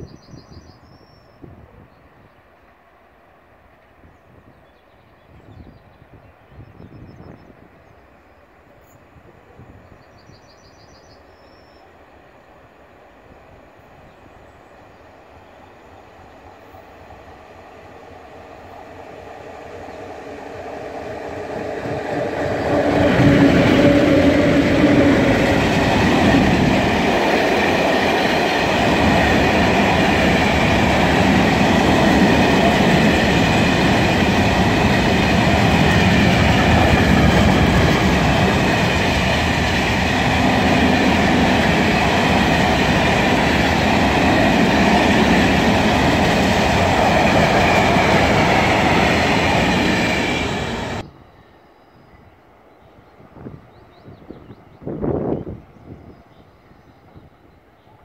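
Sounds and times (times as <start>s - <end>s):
electric locomotive passing: 7.2s - 58.0s
train wheels rolling on rails: 14.8s - 51.0s.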